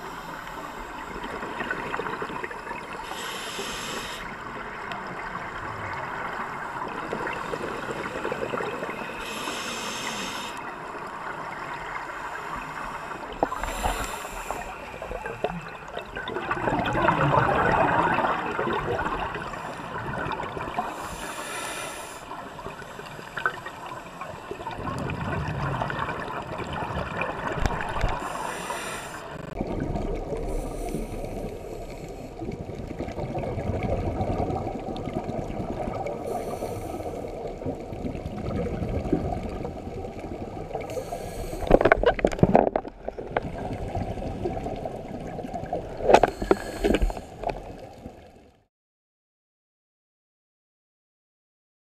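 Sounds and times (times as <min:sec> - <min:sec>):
underwater bubbling gurgle: 0:00.0 - 0:48.6
hissing regulator exhalations: 0:03.0 - 0:04.3, 0:09.2 - 0:10.6, 0:13.5 - 0:14.8, 0:20.9 - 0:22.2, 0:28.2 - 0:29.5, 0:36.3 - 0:37.3, 0:40.9 - 0:42.0, 0:46.2 - 0:47.4.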